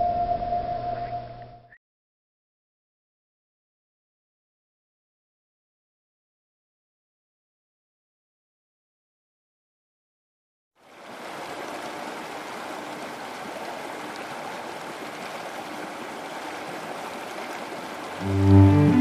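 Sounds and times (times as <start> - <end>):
river rushing over rocks: 10.9 - 19.0
music with deep notes: 18.2 - 19.0.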